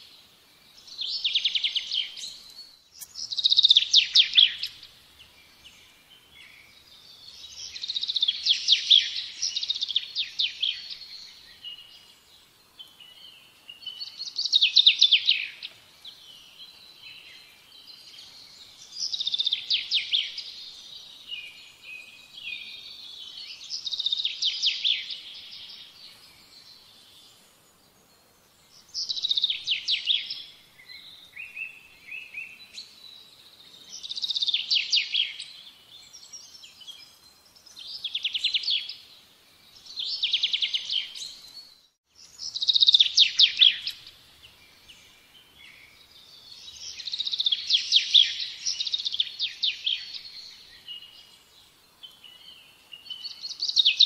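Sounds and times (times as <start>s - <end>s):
songbird trilling: 3.0s - 4.8s.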